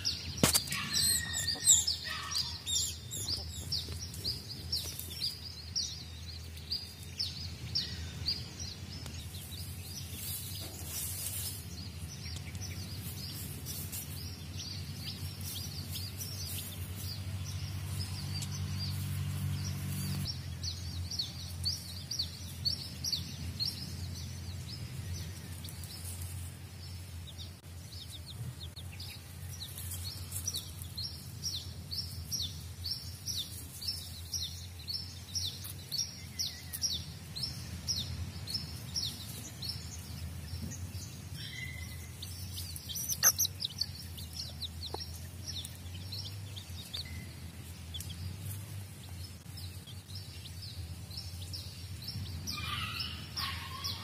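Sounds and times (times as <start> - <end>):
chicks peeping: 0.0 - 54.0.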